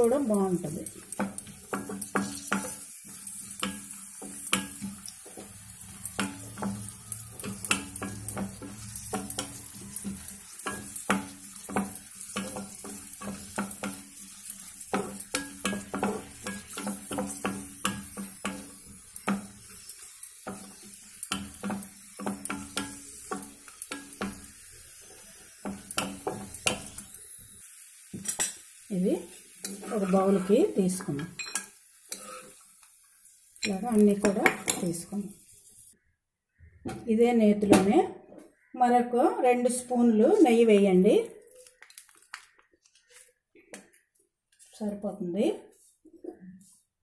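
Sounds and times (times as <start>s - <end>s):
nuts sizzling in oil: 0.0s - 36.0s
spatula scraping a pan: 0.9s - 27.2s, 29.3s - 32.9s.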